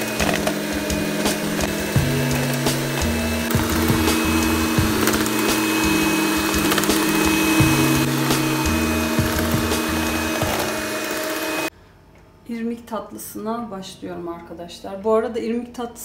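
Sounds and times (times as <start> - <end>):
electric hand mixer running: 0.0 - 11.7
mixer clicks: 0.0 - 11.7
background music low notes: 0.0 - 12.8.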